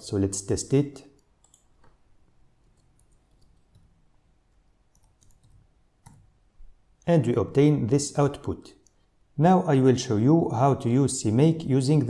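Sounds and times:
keyboard typing: 1.3 - 2.0, 2.6 - 4.0, 4.9 - 6.3.

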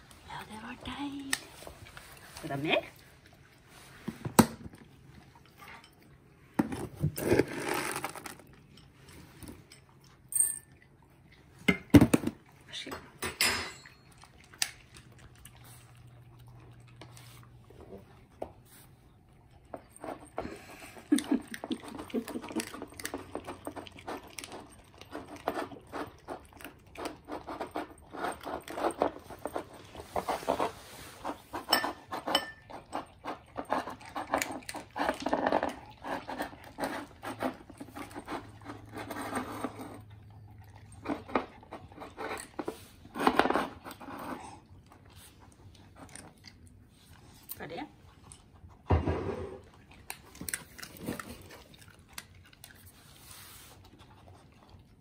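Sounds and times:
dog crunching dry kibble: 6.7 - 11.5, 21.1 - 48.9, 49.6 - 55.0.

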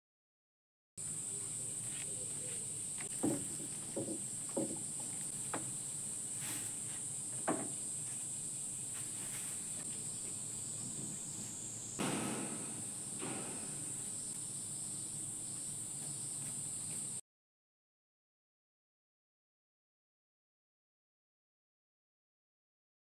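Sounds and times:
insects droning: 1.0 - 17.2
rustle of handling: 1.3 - 4.0, 4.7 - 11.6
light knocks: 3.0 - 5.8, 7.3 - 7.8, 12.0 - 14.3.

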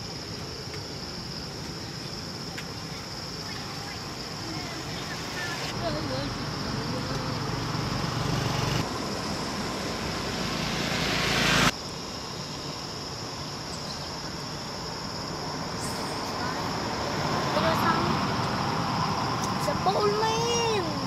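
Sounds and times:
steady outdoor hiss: 0.0 - 21.0
vehicle approaching on road: 4.4 - 12.0, 15.2 - 21.0.

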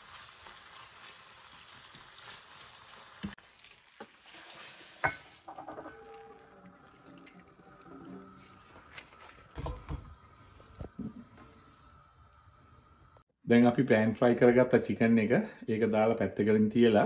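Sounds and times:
chicken sizzling in oil: 0.0 - 8.8.

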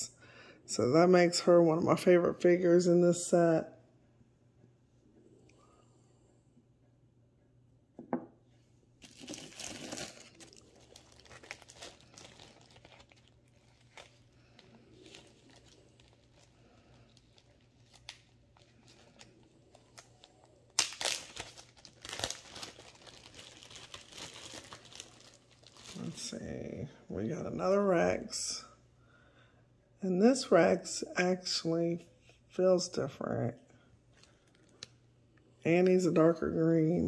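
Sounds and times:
plastic bag crinkling: 9.0 - 26.5, 34.1 - 35.0.

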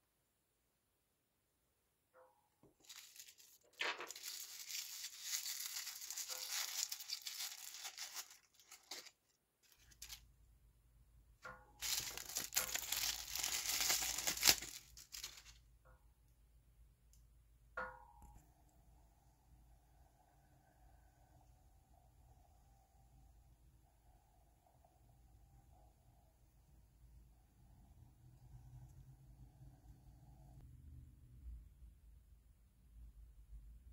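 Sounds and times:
plastic packaging tearing and crinkling: 2.8 - 10.2, 11.8 - 15.6.

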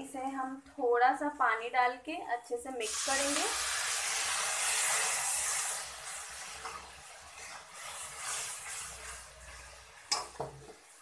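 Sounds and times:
masala hissing in a pan: 2.8 - 11.0
metal spatula scraping and stirring: 3.4 - 11.0
spatula clinking on pan: 10.1 - 10.6.

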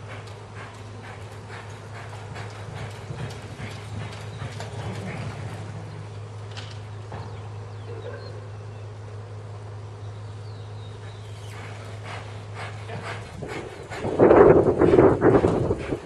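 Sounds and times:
horse hoofbeats: 0.0 - 7.5, 10.9 - 16.0
steady low hum: 0.0 - 16.0.

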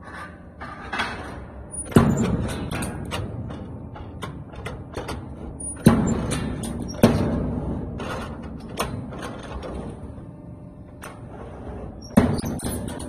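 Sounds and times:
machine clicks and knocks: 0.9 - 10.1.

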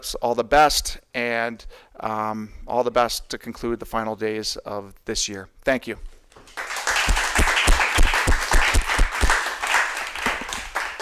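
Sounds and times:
people clapping: 6.4 - 11.0.

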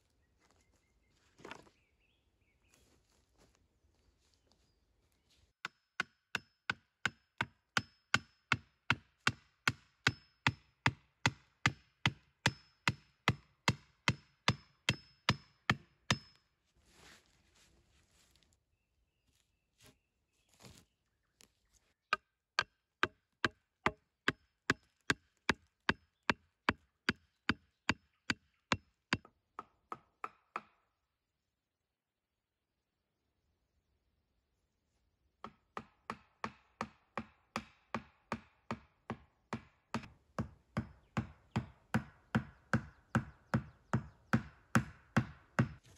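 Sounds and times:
axe chopping wood: 5.6 - 16.3, 22.1 - 30.8, 35.4 - 45.9
rustling: 16.8 - 18.6.

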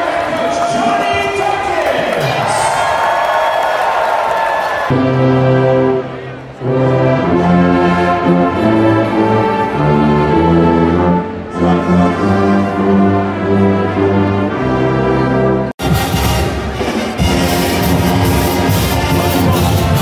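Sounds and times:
brass music slow held chords: 4.9 - 20.0.

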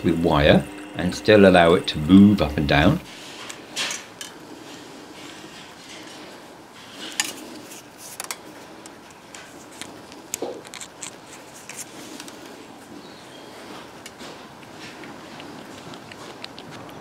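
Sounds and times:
small metal clicks and scrapes: 7.0 - 12.4.

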